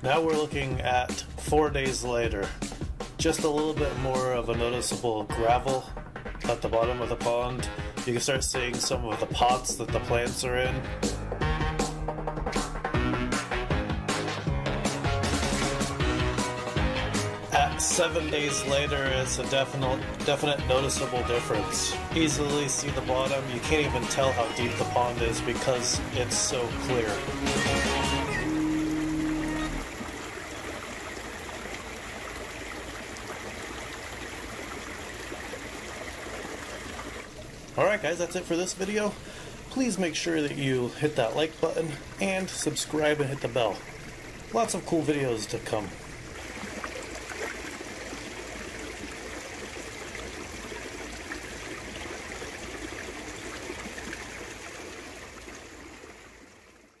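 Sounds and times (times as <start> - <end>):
water trickling into pond: 17.6 - 57.0.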